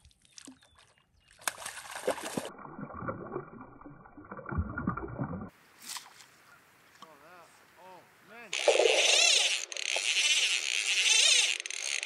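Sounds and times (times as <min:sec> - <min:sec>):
fish splashing in water: 0:00.2 - 0:03.4, 0:08.6 - 0:12.0.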